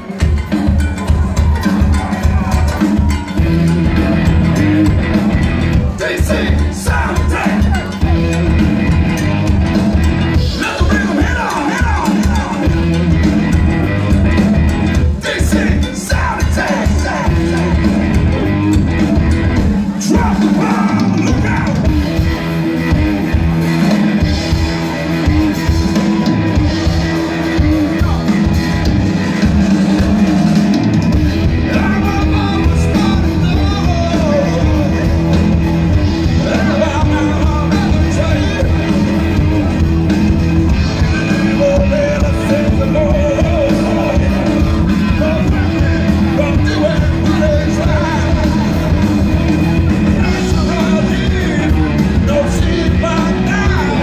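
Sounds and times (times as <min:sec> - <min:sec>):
live rock band playing: 0:00.0 - 0:54.0
man singing: 0:05.8 - 0:08.6, 0:10.3 - 0:13.0, 0:14.9 - 0:18.4, 0:19.8 - 0:22.2, 0:31.4 - 0:39.8, 0:40.7 - 0:54.0.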